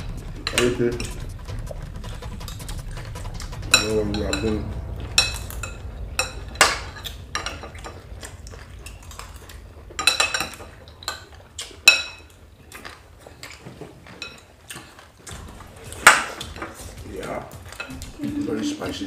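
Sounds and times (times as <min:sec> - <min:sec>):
cutlery clinking against dishes: 0:10.0 - 0:18.1.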